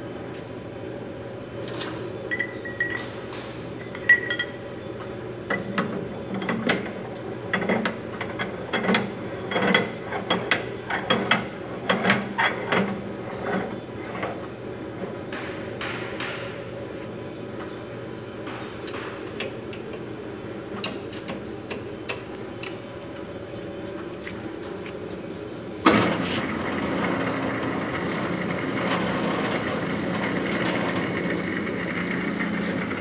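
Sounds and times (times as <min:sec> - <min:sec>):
metal parts clinking: 0:04.0 - 0:04.6.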